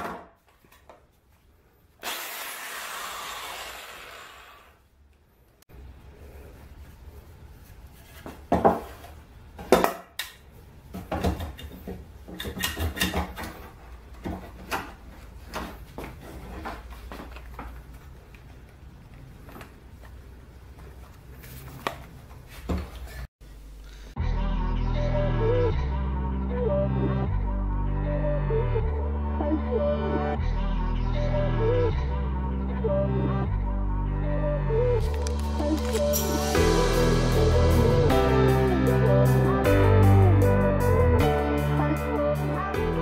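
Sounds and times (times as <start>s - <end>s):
music: 24.2s - 43.0s.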